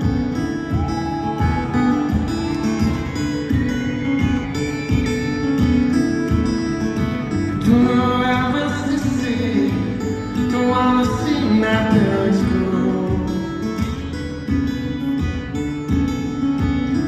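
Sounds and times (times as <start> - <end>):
acoustic guitar playing: 0.0 - 17.0
person singing: 7.6 - 13.8.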